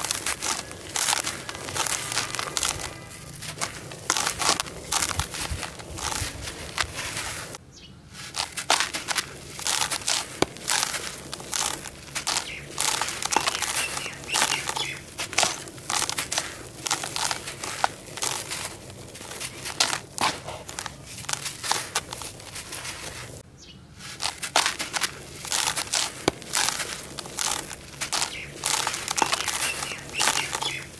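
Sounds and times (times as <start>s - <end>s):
grit pattering down: 0.0s - 7.6s, 8.2s - 23.4s, 24.0s - 30.9s
hands crunching gritty sand: 0.0s - 30.9s.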